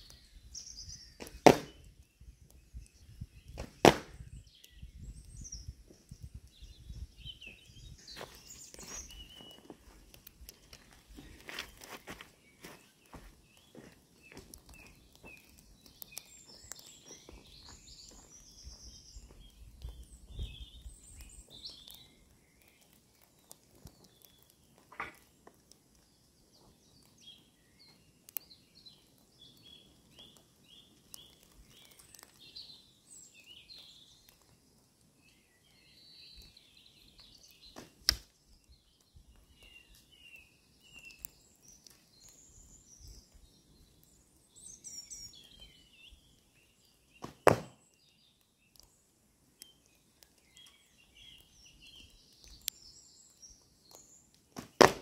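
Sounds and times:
birds chirping and singing: 0.0 - 25.3, 26.0 - 34.6, 35.2 - 55.0
arrow striking target thwack: 1.2 - 1.8, 3.6 - 4.2, 47.2 - 47.8, 54.6 - 55.0.

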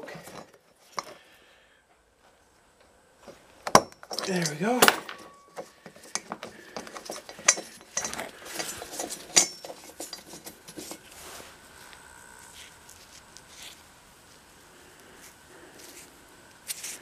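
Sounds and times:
metal clinks and scrapes: 0.0 - 1.2, 3.2 - 11.5.

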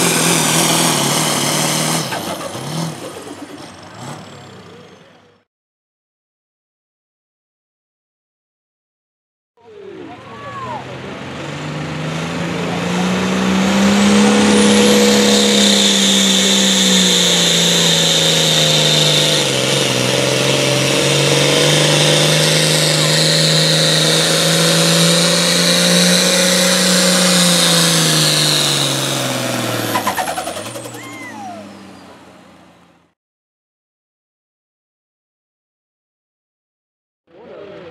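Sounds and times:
diesel engine at full throttle: 0.0 - 5.5, 9.6 - 33.2
high whine: 12.7 - 29.0.

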